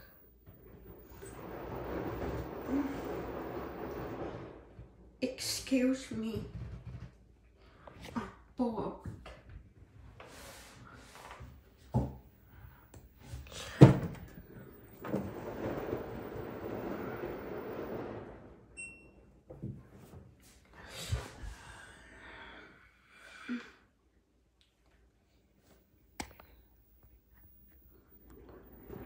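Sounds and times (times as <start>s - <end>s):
washing machine churning: 0.0s - 5.4s, 11.5s - 20.1s, 27.5s - 29.0s
washing machine thunk: 13.5s - 16.1s.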